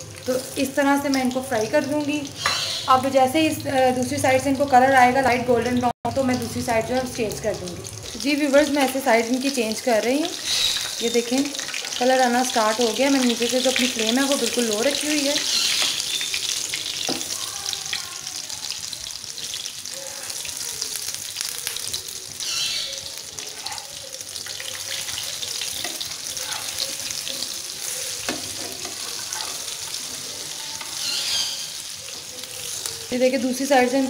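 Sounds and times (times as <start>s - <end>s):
oil sizzling in a pan: 0.0s - 34.0s
metal spatula scraping a pan: 2.3s - 3.1s, 10.3s - 11.0s, 25.1s - 32.9s.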